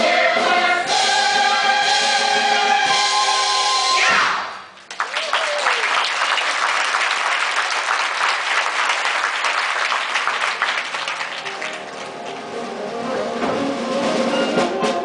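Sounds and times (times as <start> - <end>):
audience applause: 4.8 - 12.8.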